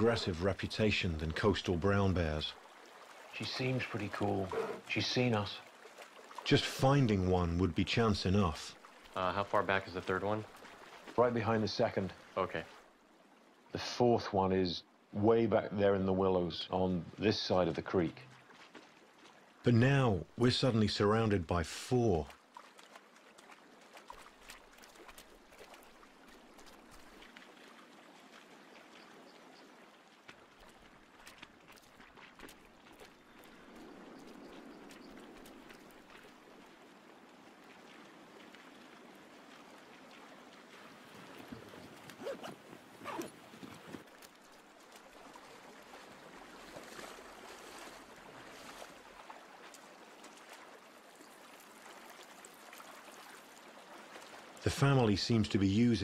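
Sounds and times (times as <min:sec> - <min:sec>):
flowing river water: 0:00.0 - 0:56.0
small ticks and drips: 0:00.5 - 0:04.4, 0:05.0 - 0:07.2, 0:08.4 - 0:13.5, 0:18.2 - 0:19.6, 0:22.0 - 0:42.2, 0:43.5 - 0:54.7.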